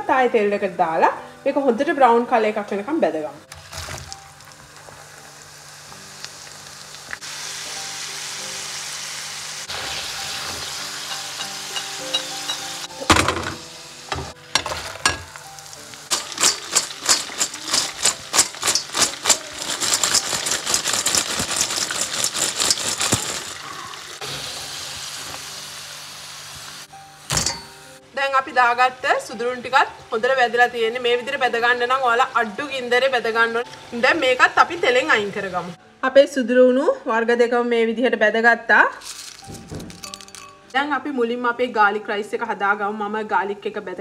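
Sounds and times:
fish sizzling in hot oil: 0:03.5 - 0:28.0
metal spoon scraping pan: 0:16.1 - 0:23.6.

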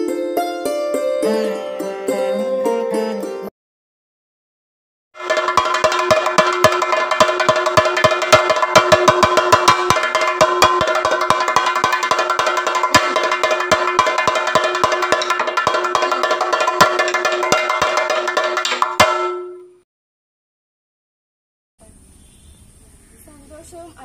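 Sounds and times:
drum beaten with stick: 0:05.2 - 0:19.8.

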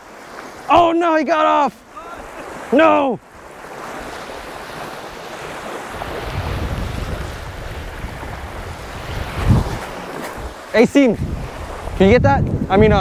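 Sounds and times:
small waves washing onto beach: 0:00.0 - 0:13.0
wind rumbling on microphone: 0:03.3 - 0:13.0.

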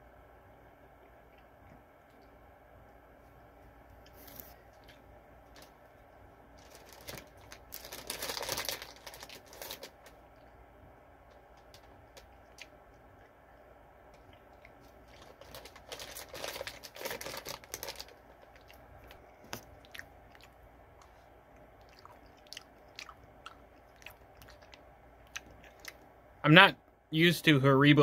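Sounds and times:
person chewing gummy candy: 0:14.1 - 0:26.1.

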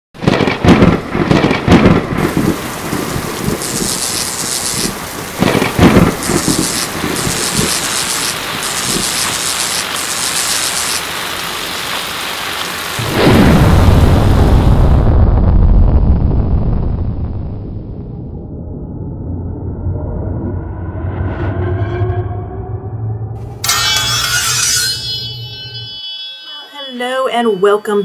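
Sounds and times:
deep thunder rumble: 0:00.2 - 0:09.4, 0:12.8 - 0:20.8
thunderclaps: 0:00.2 - 0:19.4
rain hiss: 0:02.1 - 0:15.0.

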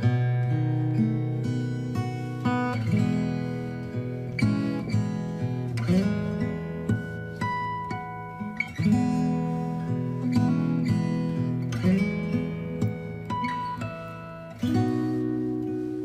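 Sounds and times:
acoustic guitar plucked notes: 0:00.0 - 0:16.0.

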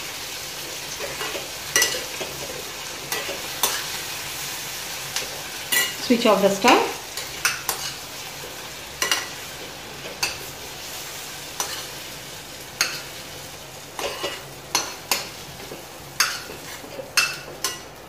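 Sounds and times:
hot oil sizzling: 0:00.0 - 0:18.0
spoon scraping and clinking on steel: 0:01.2 - 0:02.1, 0:05.7 - 0:06.0.

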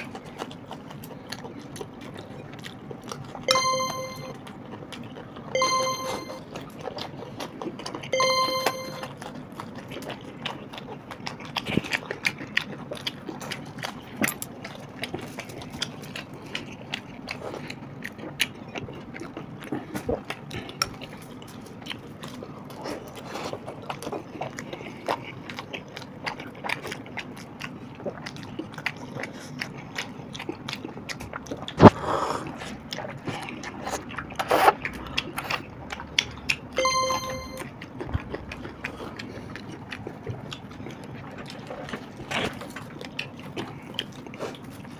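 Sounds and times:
chewing and lip smacking: 0:00.0 - 0:03.5, 0:04.3 - 0:05.5, 0:06.3 - 0:08.2, 0:09.0 - 0:36.8, 0:37.6 - 0:44.9
bell-like chime: 0:03.5 - 0:04.4, 0:05.6 - 0:06.4, 0:08.2 - 0:09.2, 0:36.8 - 0:37.6.

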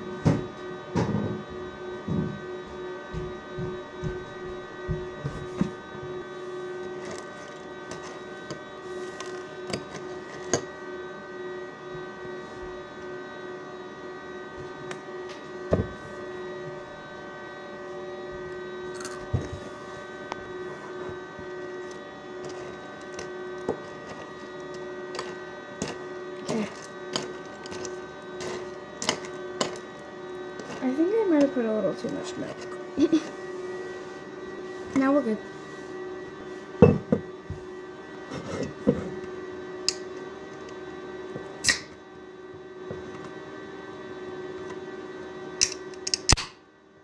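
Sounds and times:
appliance hum: 0:00.0 - 0:47.0
dishes knocking and clinking: 0:36.8 - 0:37.3.

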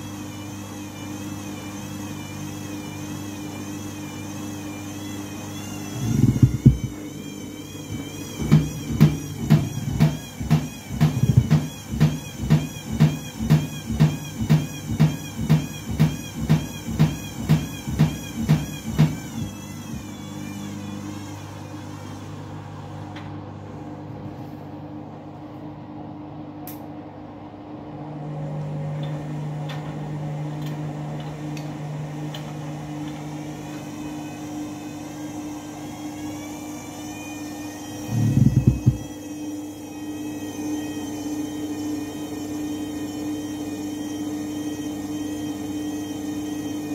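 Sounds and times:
washing machine motor whine: 0:00.0 - 0:46.9
washing machine drum thumping: 0:06.0 - 0:07.0, 0:07.9 - 0:19.3, 0:38.2 - 0:39.1.

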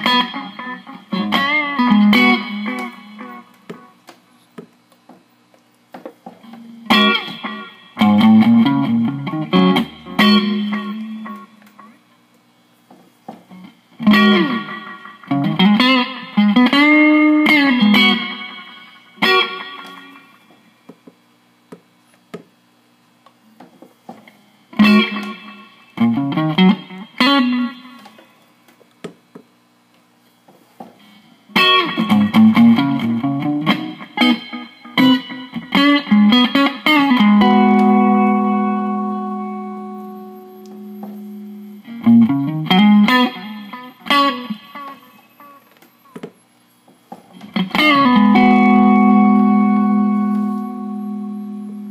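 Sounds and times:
electric guitar with delay: 0:00.0 - 0:04.1, 0:06.4 - 0:12.1, 0:13.5 - 0:20.5, 0:24.4 - 0:28.4, 0:31.0 - 0:46.2, 0:47.4 - 0:51.9.

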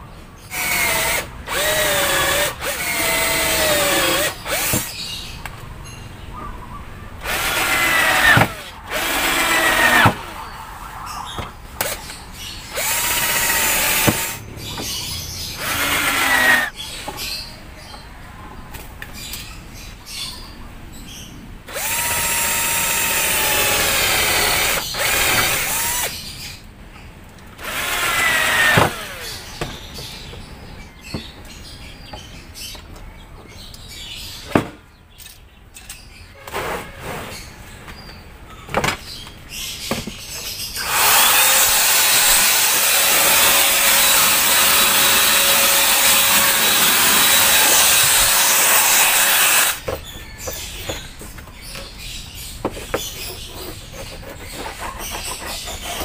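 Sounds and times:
electric drill spinning: 0:00.5 - 0:04.9, 0:07.2 - 0:10.4, 0:12.7 - 0:14.4, 0:15.6 - 0:16.7, 0:21.7 - 0:26.1, 0:27.6 - 0:29.4, 0:40.8 - 0:49.8.

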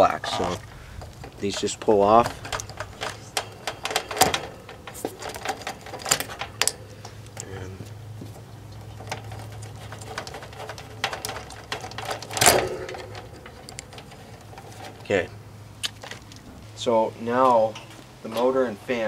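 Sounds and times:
connectors pulled off with clicks: 0:00.4 - 0:07.5, 0:08.7 - 0:15.1.

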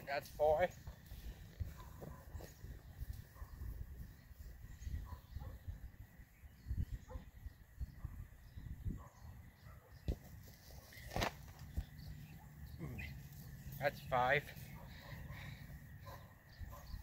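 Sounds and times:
wind rumble on microphone: 0:00.8 - 0:09.6
ball thumps on grass: 0:10.0 - 0:10.4, 0:11.0 - 0:11.9.

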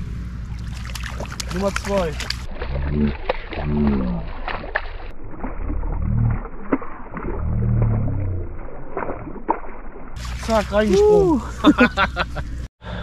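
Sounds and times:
fish splashing in water: 0:00.4 - 0:11.6
person exclaiming: 0:10.8 - 0:11.6.

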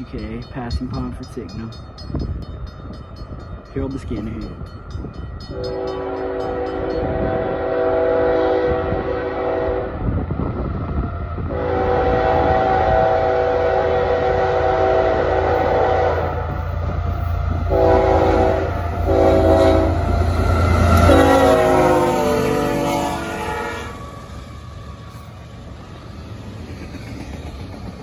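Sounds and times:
diesel locomotive rumble: 0:00.0 - 0:28.0
locomotive air horn blasts: 0:05.5 - 0:10.0, 0:11.5 - 0:16.4, 0:17.7 - 0:24.0.

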